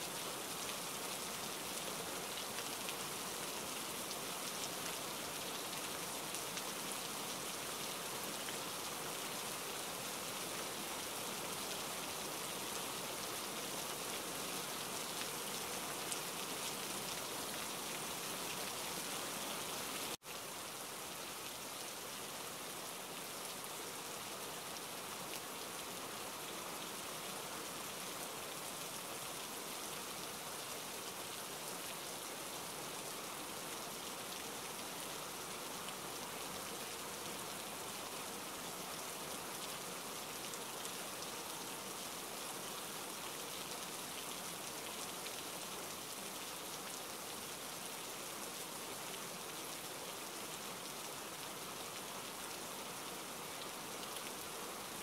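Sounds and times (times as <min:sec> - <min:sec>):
steady rain falling: 0:00.0 - 0:55.0.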